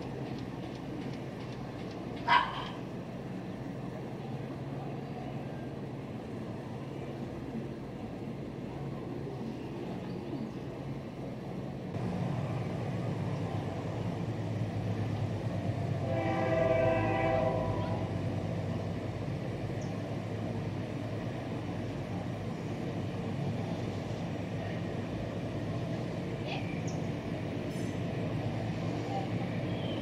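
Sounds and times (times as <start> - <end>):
locomotive rumble: 0.0 - 30.0
train horn: 16.0 - 18.2.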